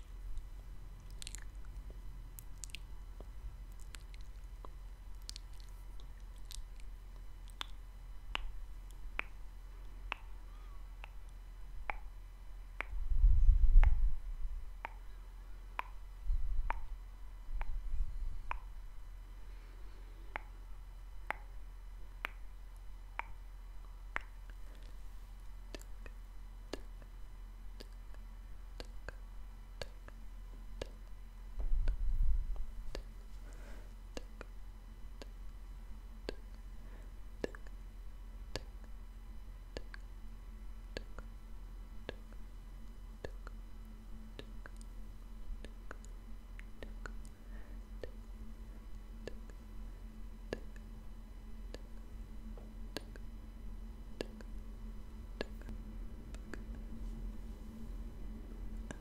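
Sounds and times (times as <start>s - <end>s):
tongue clicks: 0.0s - 9.4s, 10.1s - 12.2s, 12.8s - 13.0s, 13.8s - 14.1s, 14.8s - 15.1s, 15.8s - 16.0s, 16.6s - 16.9s, 17.6s - 17.8s, 18.4s - 18.7s, 20.3s - 20.6s, 21.2s - 21.6s, 22.2s - 22.5s, 23.2s - 25.0s, 25.7s - 27.1s, 27.8s - 28.2s, 28.8s - 30.2s, 30.8s - 31.2s, 34.1s - 34.6s, 35.2s - 35.5s, 36.2s - 36.6s, 37.4s - 37.8s, 38.5s - 39.0s, 39.7s - 40.1s, 40.8s - 41.3s, 42.0s - 42.4s, 43.2s - 43.6s, 44.3s - 44.9s, 45.6s - 47.4s, 49.2s - 49.6s, 50.5s - 50.9s, 51.7s - 52.0s, 52.6s - 53.3s, 54.2s - 54.7s, 55.4s - 56.9s
muffled microphone rumbles: 31.6s - 32.9s.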